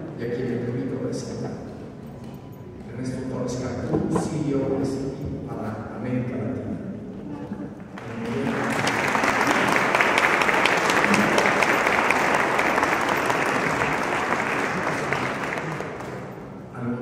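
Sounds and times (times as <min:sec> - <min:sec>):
audience applauding: 0:07.9 - 0:16.6.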